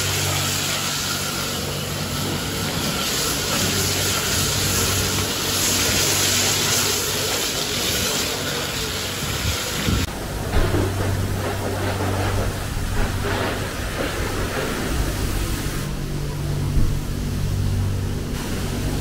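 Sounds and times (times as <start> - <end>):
low even hum: 8.8 - 19.0.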